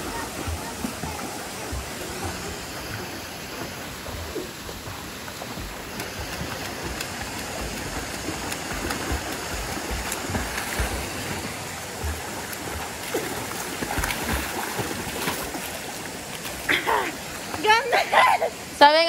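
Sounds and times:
children splashing in pool: 0.0s - 3.0s, 5.5s - 15.9s.

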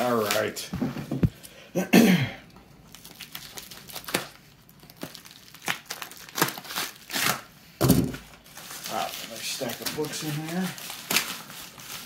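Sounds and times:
plastic mailer crinkling: 8.2s - 12.0s.

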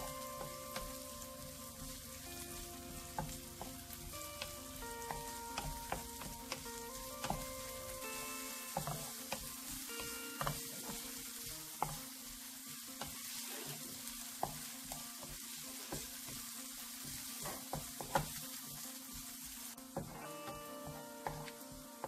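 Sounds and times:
onion sizzling in hot oil: 0.0s - 22.0s
wooden spatula scraping pan: 8.7s - 21.8s.

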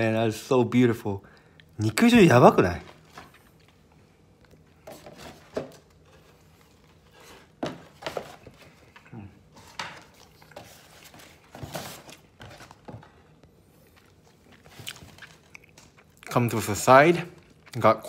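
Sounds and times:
person chewing food: 3.0s - 5.0s, 12.2s - 16.6s, 17.2s - 17.9s.

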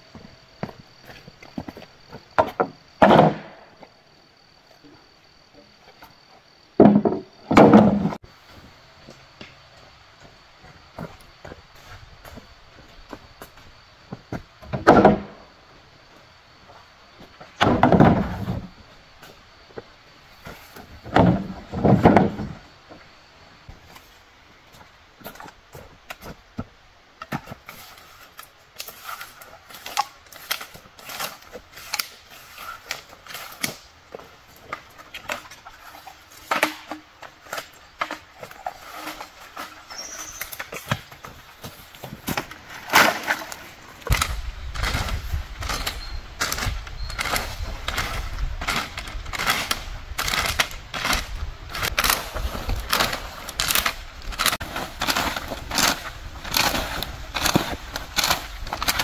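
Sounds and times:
leaves and twigs raked: 27.6s - 59.0s
dry sticks snapping: 29.8s - 32.1s, 44.1s - 59.0s.

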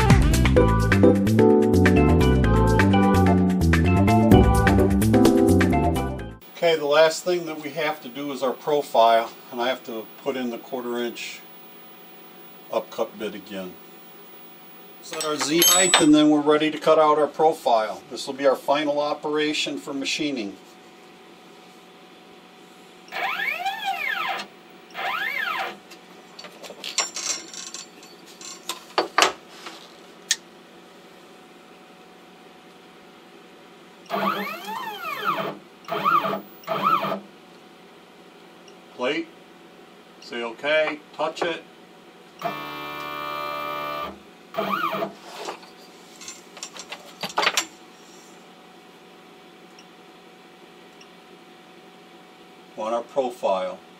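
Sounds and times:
stepper motors whining: 6.4s - 15.2s, 23.1s - 25.8s, 34.1s - 37.2s, 42.4s - 45.1s.

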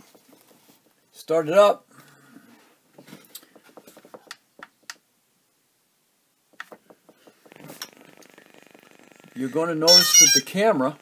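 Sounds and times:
faint clicks and taps: 0.0s - 1.0s, 2.9s - 5.1s, 6.5s - 8.0s.

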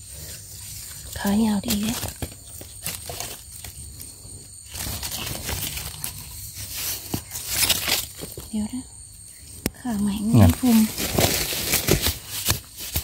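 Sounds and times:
leaves and twigs rustling: 0.0s - 13.0s
twigs snapping: 7.0s - 8.5s.

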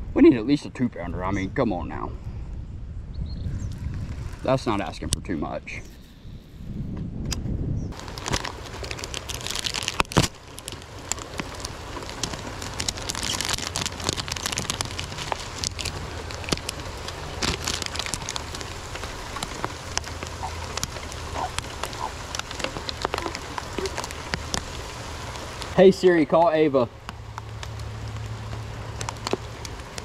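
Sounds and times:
plastic packaging crinkling: 8.0s - 25.8s, 27.2s - 30.0s
rain pattering: 8.0s - 30.0s.

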